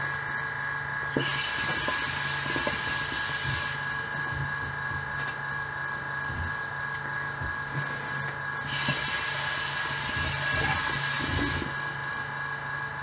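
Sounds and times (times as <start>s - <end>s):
hookah hiss with bubbling pops: 1.1s - 5.4s, 7.0s - 11.8s.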